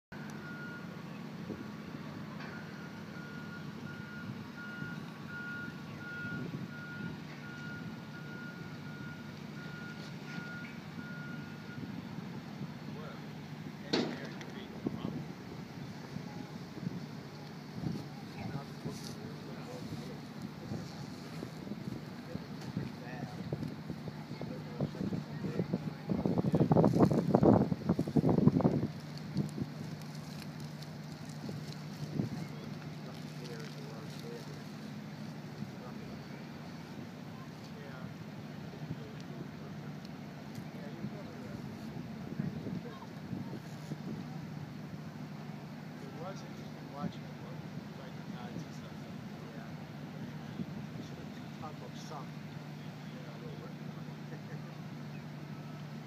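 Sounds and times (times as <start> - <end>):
backup alarm beeping: 0.1 - 1.0, 2.4 - 12.0
low engine rumble: 0.1 - 56.0
wind buffeting microphone: 13.6 - 30.0.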